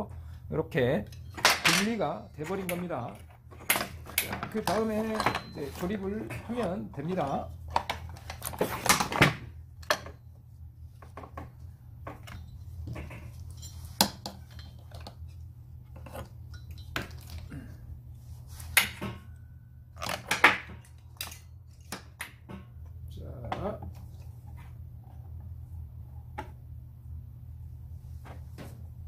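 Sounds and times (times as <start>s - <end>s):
steady low hum: 0.0s - 29.0s
metal parts clinking and knocking: 1.1s - 9.1s, 12.1s - 15.3s, 16.0s - 17.5s.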